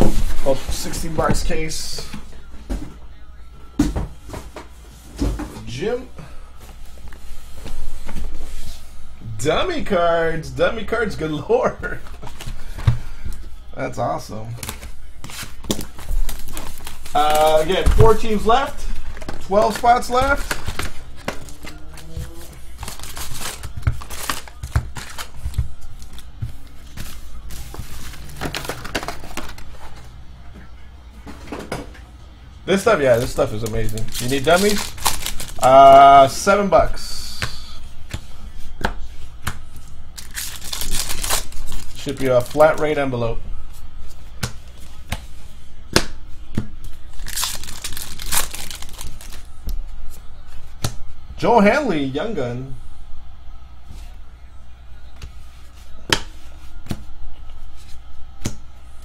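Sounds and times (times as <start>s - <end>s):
wrapped card packs rustling: 11.8s - 13.6s, 14.4s - 30.1s, 32.8s - 37.7s, 39.6s - 43.1s, 46.9s - 49.8s
wrapper tearing and crinkling: 22.8s - 25.4s, 33.1s - 35.7s, 40.2s - 42.7s, 47.1s - 49.5s.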